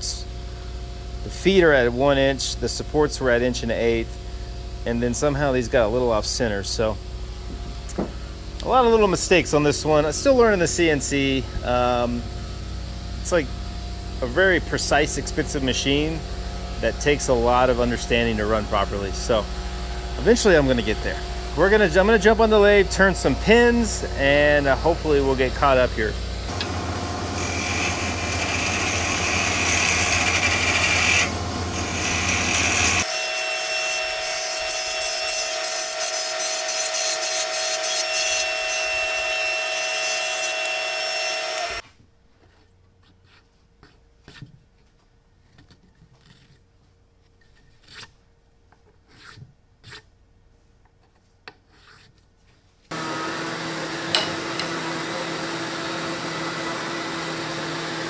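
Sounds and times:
sander running: 0:07.4 - 0:41.9, 0:52.9 - 0:58.0
lathe motor hum: 0:15.9 - 0:41.8, 0:52.9 - 0:58.0
plunge router running: 0:26.5 - 0:34.4, 0:37.2 - 0:41.8, 0:52.9 - 0:58.0
wood lathe turning tool scraping: 0:26.5 - 0:41.8.

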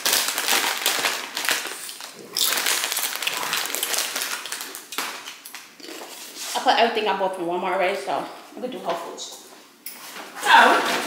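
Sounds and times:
plastic bags rustling and crinkling: 0:00.0 - 0:06.8.

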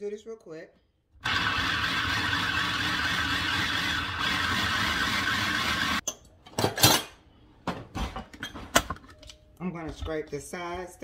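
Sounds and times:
food processor chopping: 0:01.2 - 0:06.0.

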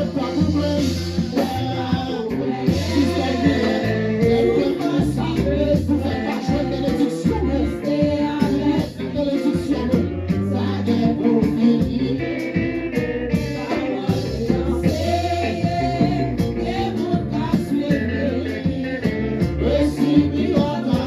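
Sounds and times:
instrumental accompaniment with bass: 0:00.0 - 0:21.0
several voices singing gospel: 0:00.0 - 0:21.0.

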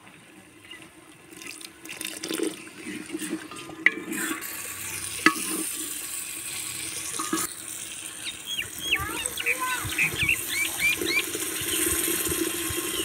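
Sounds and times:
steady hiss from hot pot: 0:02.0 - 0:13.0
wooden spoon scraping metal pot: 0:02.2 - 0:06.0, 0:07.0 - 0:07.5.

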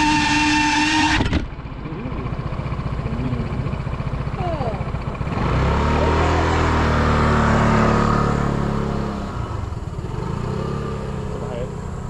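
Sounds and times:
scooter engine pulling away: 0:01.2 - 0:12.0.

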